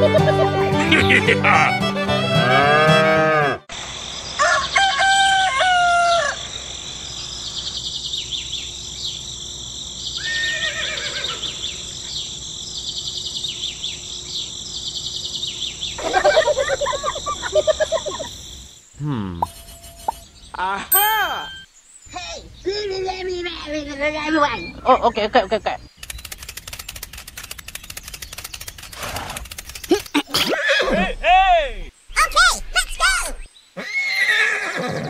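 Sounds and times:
music: 0:00.0 - 0:03.1
rooster crowing: 0:04.4 - 0:06.5
birds chirping: 0:06.0 - 0:35.0
rattling bird call: 0:25.9 - 0:30.3.

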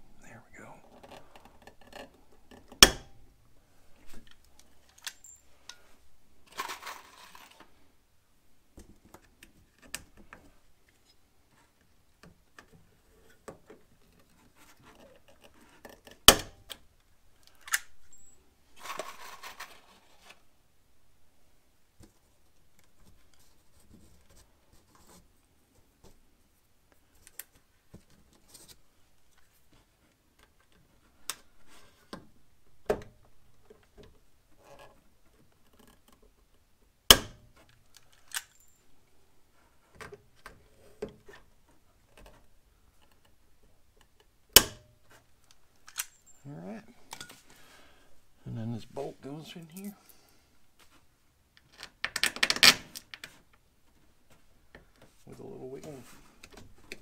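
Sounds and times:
tool and parts clicking and rattling: 0:01.0 - 0:03.0, 0:04.2 - 0:05.8, 0:06.4 - 0:07.8, 0:12.2 - 0:20.4, 0:37.6 - 0:38.9, 0:45.4 - 0:46.4, 0:47.0 - 0:47.4.

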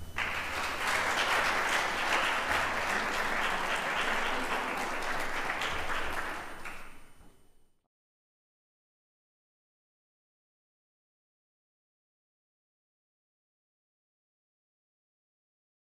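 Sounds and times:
congregation applauding: 0:00.0 - 0:07.3.

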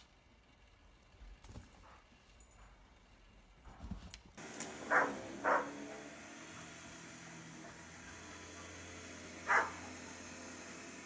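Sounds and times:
electric snow thrower humming: 0:04.4 - 0:11.0
dog barking: 0:04.9 - 0:05.8, 0:09.4 - 0:10.0.

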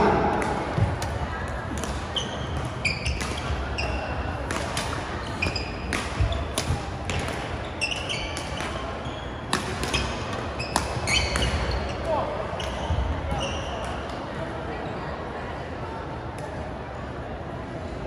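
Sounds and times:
murmur of voices: 0:00.0 - 0:18.0
racket hitting shuttlecock: 0:00.1 - 0:08.9, 0:09.5 - 0:11.8
shoe squeaks on court floor: 0:02.1 - 0:04.2, 0:05.2 - 0:06.6, 0:07.6 - 0:12.0, 0:12.6 - 0:14.0.

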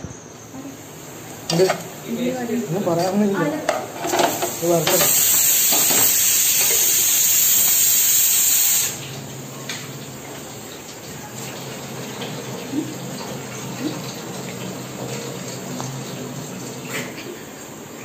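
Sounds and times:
pressure cooker steam hiss: 0:00.8 - 0:09.1
water running from tap: 0:00.8 - 0:18.0.

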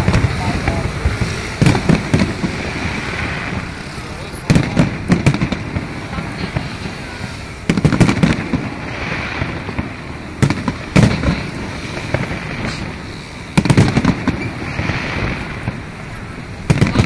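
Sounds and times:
fireworks bursting: 0:00.0 - 0:17.0
steady background noise: 0:00.0 - 0:17.0.

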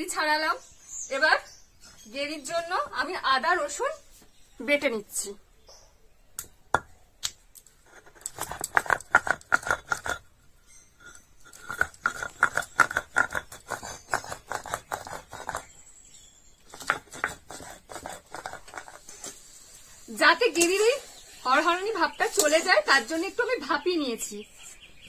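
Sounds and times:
grinding stone scraping and crunching: 0:07.6 - 0:20.0.

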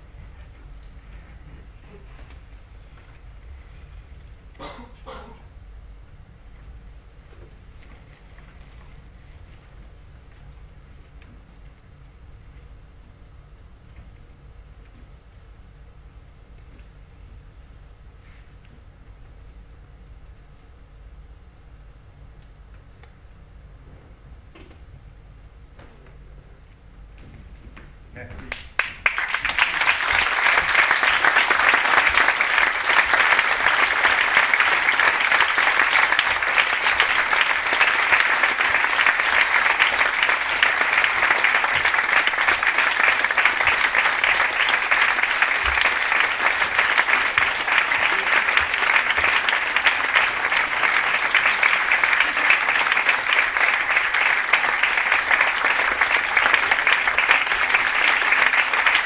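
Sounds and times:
audience applause: 0:28.5 - 0:59.0.

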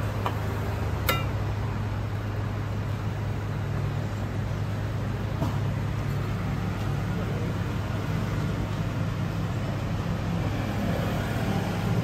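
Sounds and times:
low mechanical hum: 0:00.0 - 0:12.0
ladle clinking on steel pot: 0:01.0 - 0:01.4.

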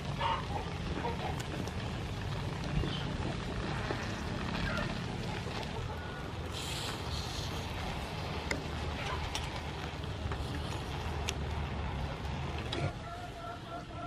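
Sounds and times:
light hiss: 0:06.4 - 0:11.6.

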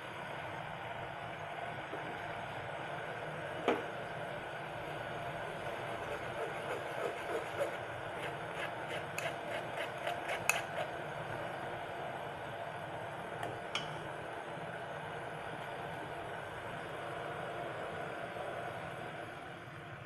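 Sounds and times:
spoon scraping in metal strainer: 0:06.9 - 0:10.9.

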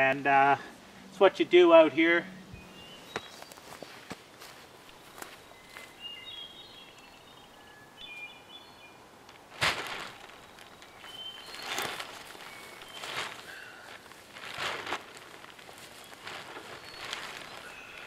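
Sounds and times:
songbird chirping: 0:01.0 - 0:09.2, 0:10.2 - 0:14.1, 0:15.4 - 0:18.0
footsteps on forest floor: 0:02.8 - 0:06.4, 0:09.6 - 0:18.0
rustling thump: 0:09.5 - 0:17.6
blanket rustling: 0:09.5 - 0:18.0.

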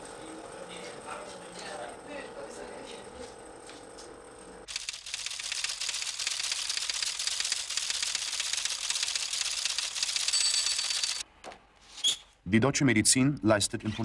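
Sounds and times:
teleprinter clattering rapid clicks: 0:04.7 - 0:11.2.

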